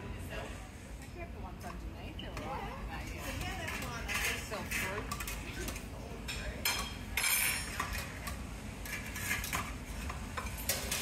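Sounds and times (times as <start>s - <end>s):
metal tongs and dishes clinking: 3.1s - 11.0s.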